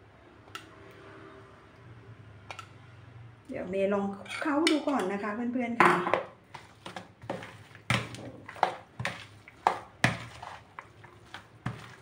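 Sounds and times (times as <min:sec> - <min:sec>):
utensil scraping plastic bowl: 0:06.4 - 0:12.0
wet noodles being tossed: 0:06.4 - 0:12.0.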